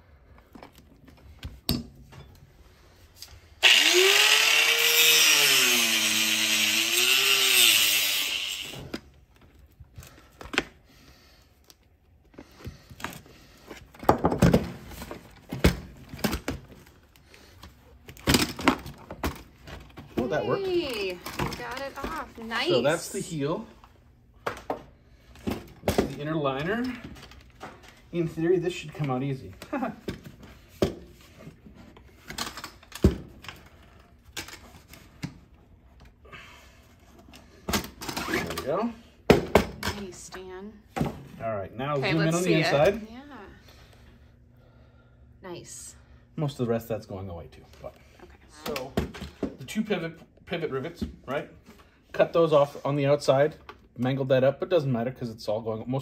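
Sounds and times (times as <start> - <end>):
angle grinder spinning down: 3.6 - 8.9.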